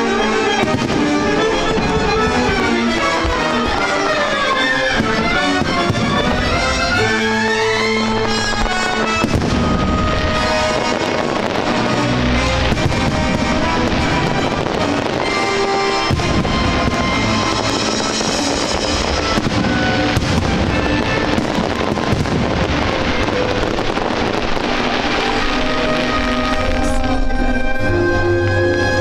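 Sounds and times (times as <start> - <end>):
fireworks bursting and crackling: 0.0 - 29.0
music of sustained notes: 0.0 - 29.0
sharp firework bangs: 8.0 - 27.2.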